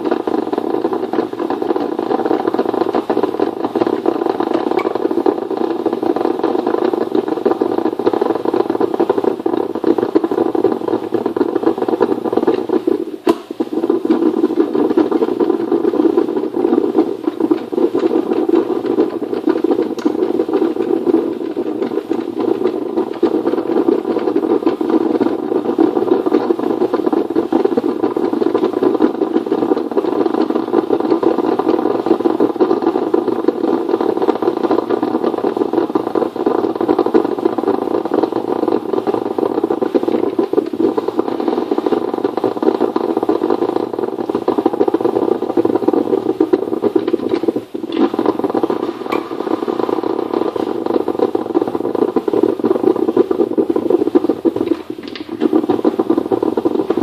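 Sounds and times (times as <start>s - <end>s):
drip coffee maker brewing: 36.4s - 57.0s.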